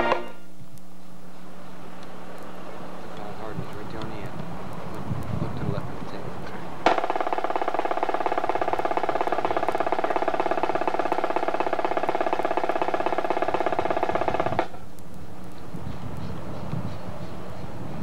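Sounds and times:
military band held chord: 0.0 - 0.5
rapid drum roll: 6.8 - 14.8.

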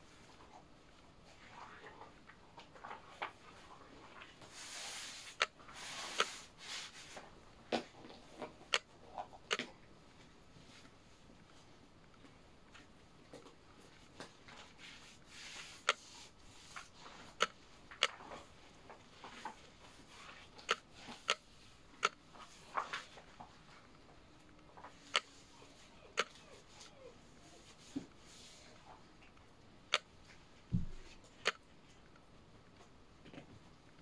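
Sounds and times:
sharp clicks and light taps: 8.7 - 8.9, 9.5 - 9.7, 17.4 - 18.2, 20.6 - 22.2.

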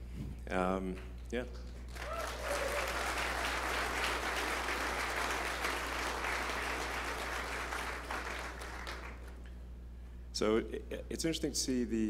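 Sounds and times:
audience applauding: 1.9 - 9.4.

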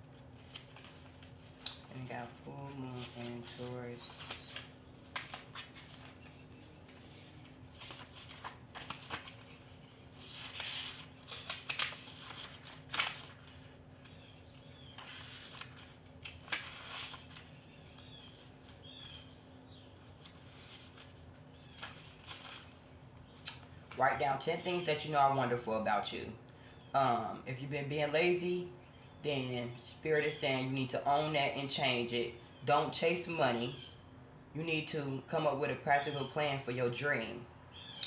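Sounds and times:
low electrical hum: 0.0 - 38.0
cards being shuffled: 0.1 - 18.1.

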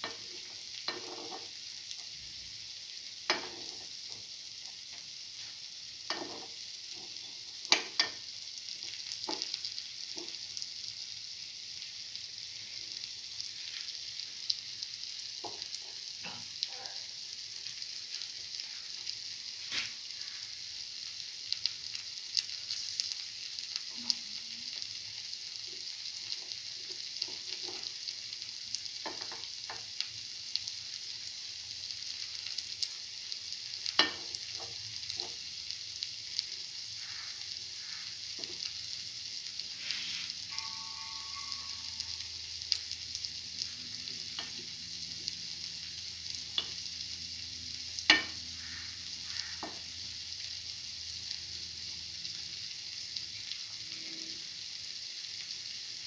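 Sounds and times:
sharp cracks of frying oil: 0.0 - 2.5, 3.1 - 5.2, 6.0 - 11.2, 14.2 - 18.4, 20.8 - 39.8, 42.6 - 53.7
fritters sizzling in oil: 0.0 - 56.0.

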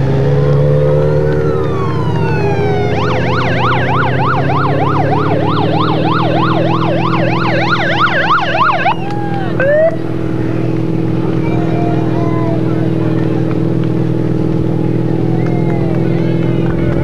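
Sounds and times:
vehicle engine running: 0.0 - 17.0
siren wailing and yelping: 1.1 - 10.0.

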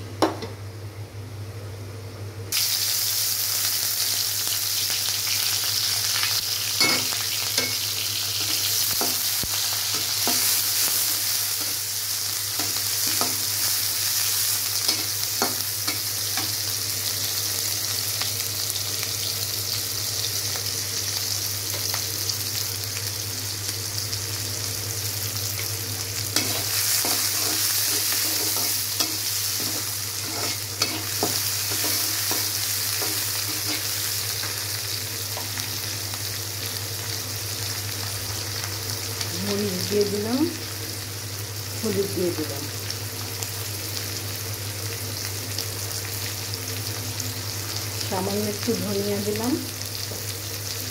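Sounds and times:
onions sizzling in hot oil: 2.5 - 50.9
metal spatula scraping pan: 26.4 - 32.4.

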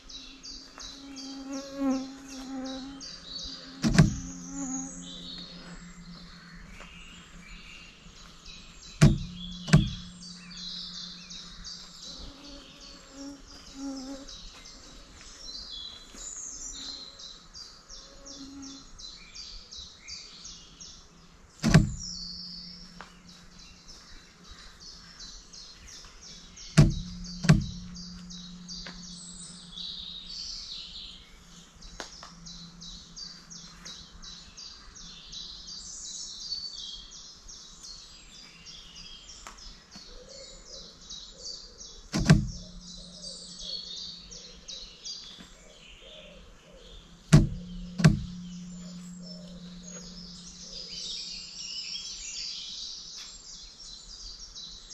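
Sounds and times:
birds chirping: 0.0 - 54.9
low hum: 3.0 - 13.6, 21.2 - 25.2, 26.3 - 35.7, 42.2 - 44.9, 46.9 - 52.0
sharp clicks: 21.6 - 22.1, 42.1 - 42.8, 47.3 - 48.5.

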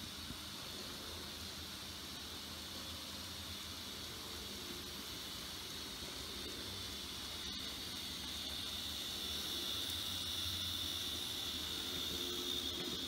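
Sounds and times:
model train motors whirring: 0.0 - 13.0.

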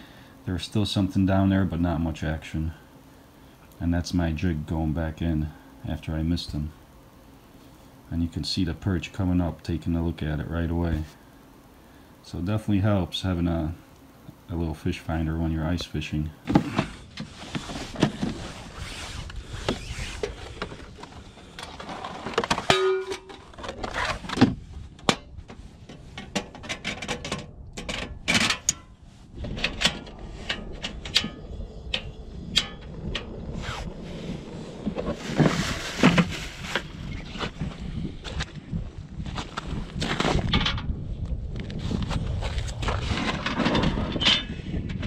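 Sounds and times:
camp stove handling clicks: 29.5 - 33.3.

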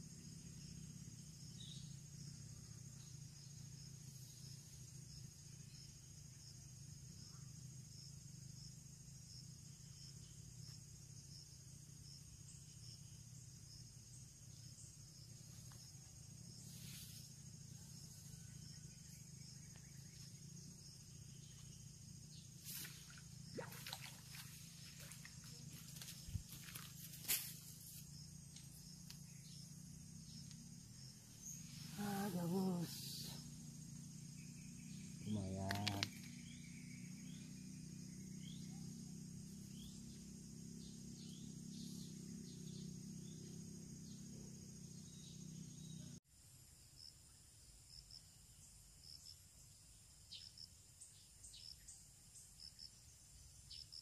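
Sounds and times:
faint insect chirring: 0.0 - 54.0.

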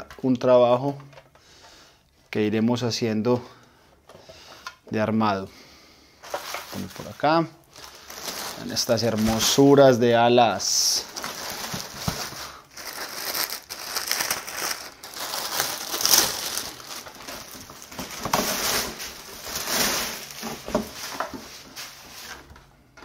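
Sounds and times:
plastic wrapping crinkling: 6.2 - 22.6.

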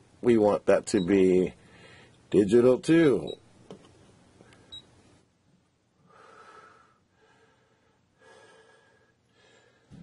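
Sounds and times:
soft breaths: 1.6 - 2.3, 6.0 - 10.0.

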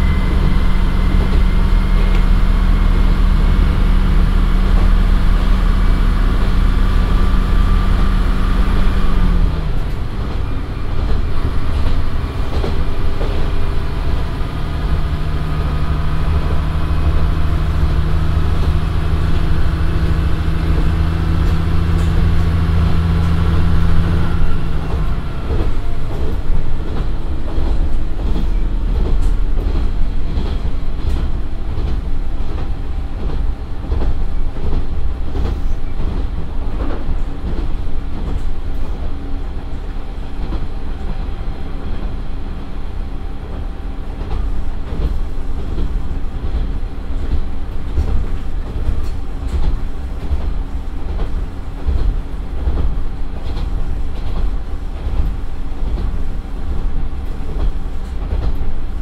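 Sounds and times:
diesel engine note: 0.0 - 9.9, 14.1 - 26.3
wheel and rail rumble: 0.0 - 59.0.

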